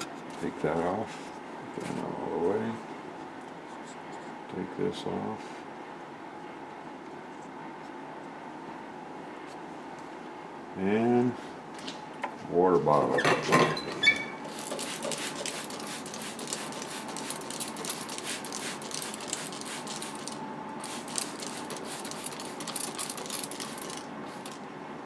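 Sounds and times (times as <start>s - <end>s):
spray bottle squirting: 14.4s - 24.6s.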